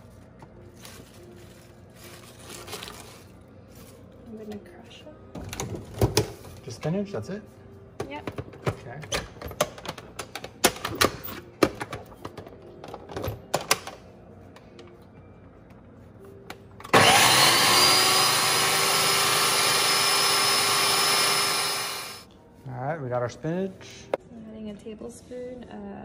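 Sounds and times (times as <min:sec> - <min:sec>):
food processor motor whining: 0:16.9 - 0:22.3.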